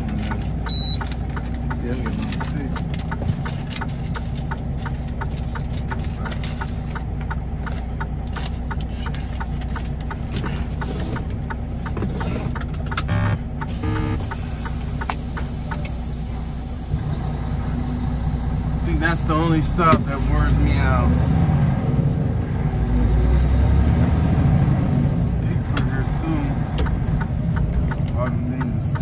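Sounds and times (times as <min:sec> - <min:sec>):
engine idling: 0:00.0 - 0:21.0.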